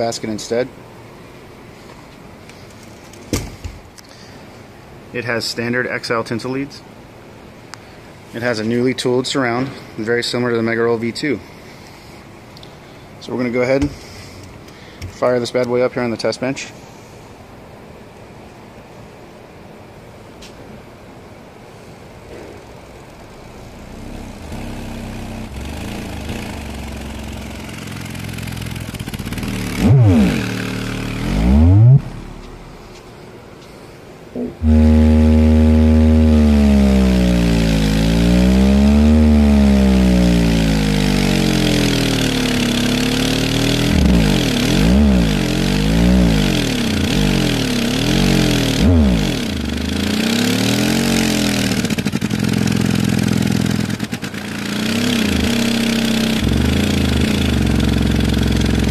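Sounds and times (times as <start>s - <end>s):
low buzzing subwoofer tone: 21.7s - 33.4s, 34.3s - 54.1s, 54.9s - 58.9s
sweeping bass tones: 23.0s - 33.3s, 34.3s - 52.3s, 54.9s - 58.9s.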